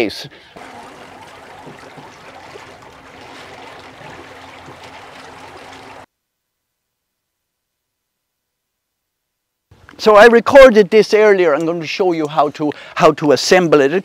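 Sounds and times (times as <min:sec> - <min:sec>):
faint steady hum: 0:00.3 - 0:07.8
water splashing against hull: 0:00.6 - 0:06.1.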